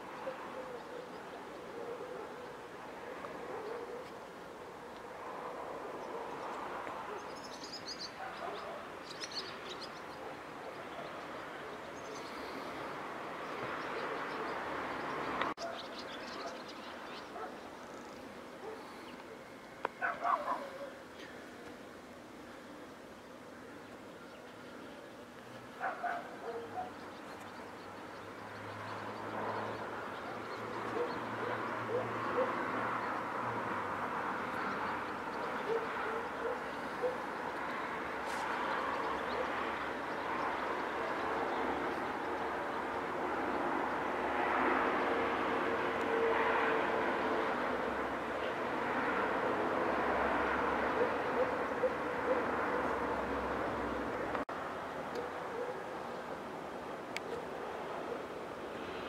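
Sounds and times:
outdoor ambience rush: 0.0 - 59.0
small birds chirping: 6.0 - 19.3, 22.9 - 33.3.

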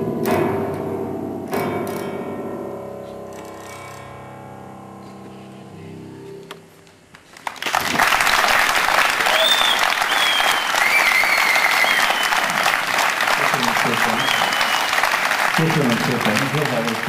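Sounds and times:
piano chord ringing: 0.0 - 6.8
audience applause: 7.3 - 17.0.

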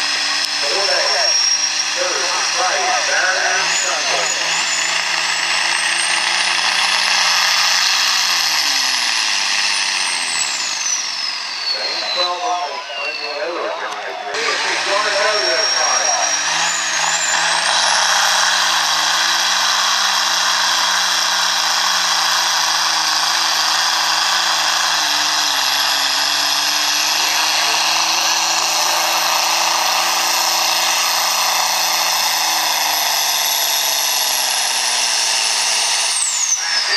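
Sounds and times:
tractor diesel engine at full load: 0.0 - 36.9
turbo whistle: 10.0 - 18.0.

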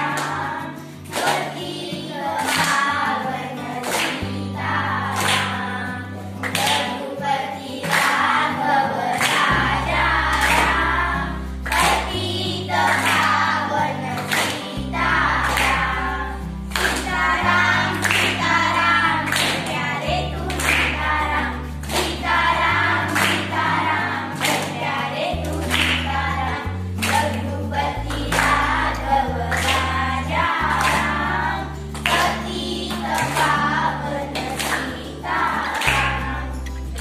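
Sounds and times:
girls singing in unison: 0.0 - 37.0
hands clapping in rhythm: 0.0 - 37.0.

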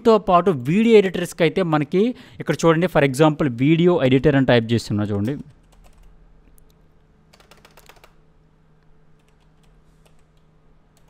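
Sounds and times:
faint steady hum: 0.0 - 11.0
keyboard typing: 5.1 - 8.2, 9.2 - 11.0.

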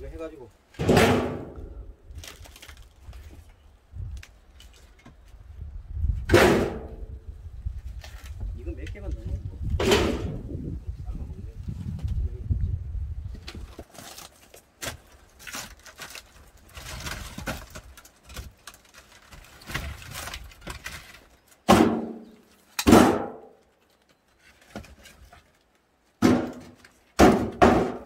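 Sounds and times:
logs knocking into metal wheelbarrow: 0.8 - 1.6, 6.3 - 7.0, 9.8 - 10.4, 21.7 - 22.2, 22.8 - 23.5, 26.2 - 28.0.

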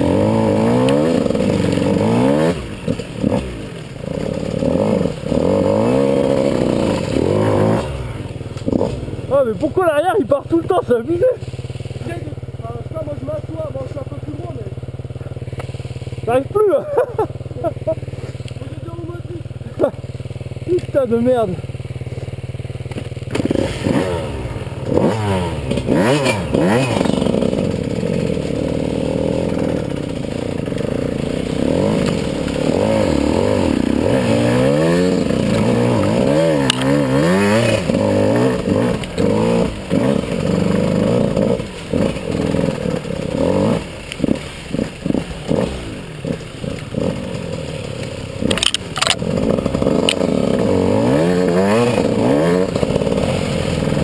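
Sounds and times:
dirt bike engine revving: 0.0 - 54.0
brush scraping against bike: 10.7 - 12.5, 15.2 - 16.3, 16.9 - 21.0, 26.2 - 54.0.

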